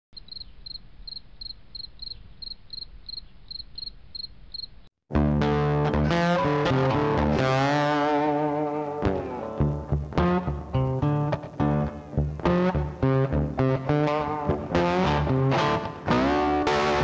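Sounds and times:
cricket chirping: 0.2s - 4.9s
guitar music: 5.1s - 17.0s.

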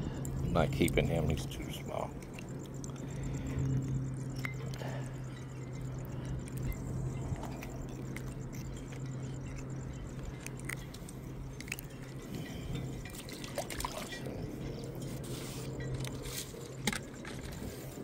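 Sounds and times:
steady low hum: 0.0s - 18.0s
water lapping at rocky shore: 12.3s - 14.2s
water splashing: 13.0s - 14.2s.

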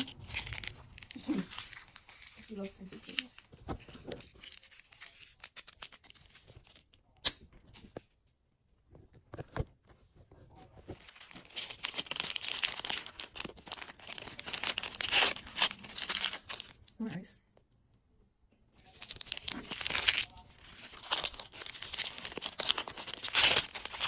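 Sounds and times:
plastic wrapper crinkling and tearing: 0.0s - 7.4s, 10.9s - 16.9s, 18.8s - 24.0s.

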